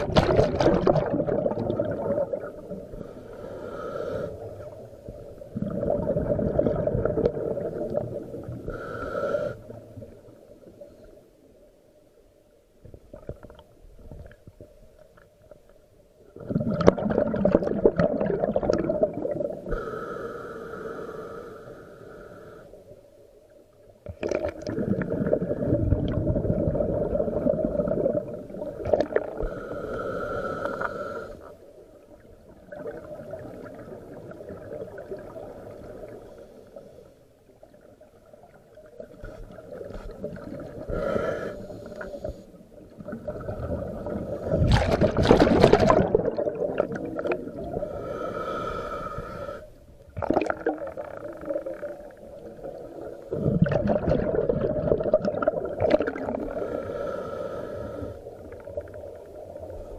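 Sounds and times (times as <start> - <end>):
gurgling exhaled bubbles underwater: 0.0 - 3.1, 5.0 - 8.7, 16.4 - 19.7, 24.1 - 29.7, 32.0 - 36.2, 37.6 - 41.2, 42.0 - 48.2, 50.1 - 56.8.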